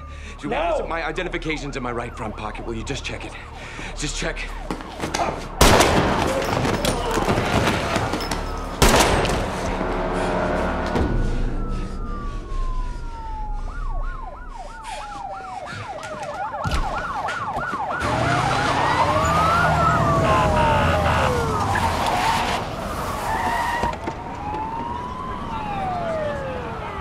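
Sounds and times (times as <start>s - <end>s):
police siren yelp: 0.0s - 8.8s, 9.7s - 27.0s
police siren wail: 0.0s - 27.0s
car engines running: 17.9s - 25.8s.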